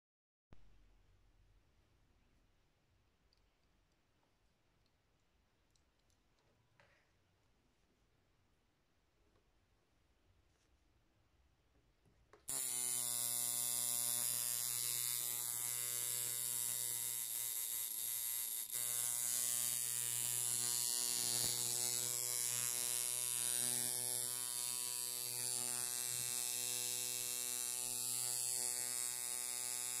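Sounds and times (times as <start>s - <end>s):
tattoo machine buzzing: 12.5s - 30.0s.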